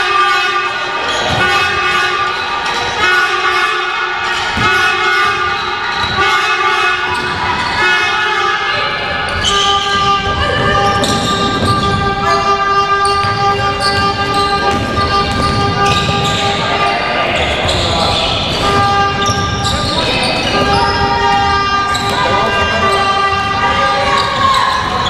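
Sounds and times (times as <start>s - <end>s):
horn-like tones: 0.0s - 25.0s
basketball dribbling on wooden floor: 9.9s - 16.6s.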